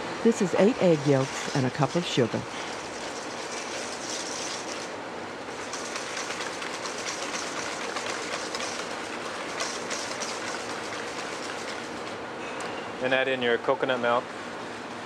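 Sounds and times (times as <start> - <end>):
whisk beating in a bowl: 5.5 - 12.1.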